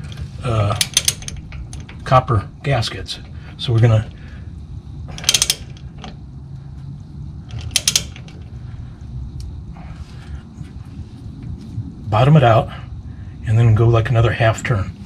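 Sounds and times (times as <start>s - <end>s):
socket ratchet clicking: 0.8s - 1.9s, 5.2s - 5.9s, 7.5s - 8.4s.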